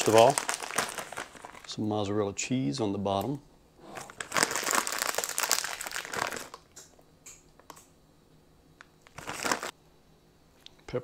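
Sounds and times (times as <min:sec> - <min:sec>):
plastic bag crinkling: 0:00.0 - 0:01.7, 0:03.9 - 0:06.8, 0:09.0 - 0:09.8.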